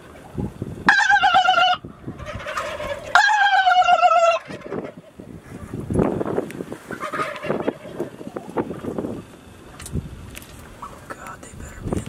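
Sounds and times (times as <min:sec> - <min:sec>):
turkey gobbling: 0:00.0 - 0:05.8, 0:06.7 - 0:09.2.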